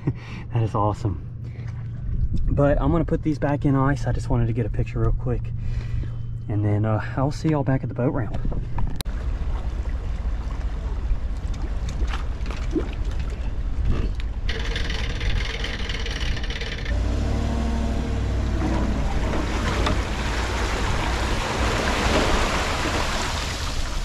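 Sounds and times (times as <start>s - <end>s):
low engine rumble: 0.0s - 24.0s
water splashing around hull: 8.4s - 24.0s.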